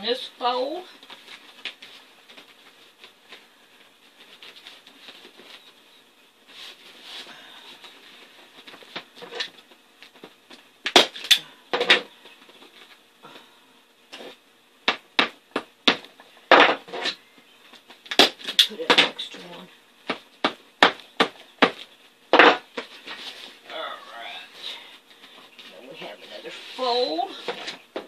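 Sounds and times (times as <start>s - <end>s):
vinyl rustling and clicking: 1.0s - 5.9s, 7.8s - 13.1s.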